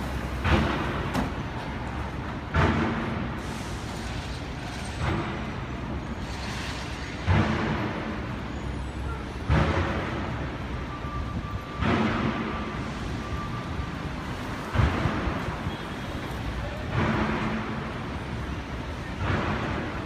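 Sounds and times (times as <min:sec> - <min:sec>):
city street traffic: 0:00.0 - 0:20.0.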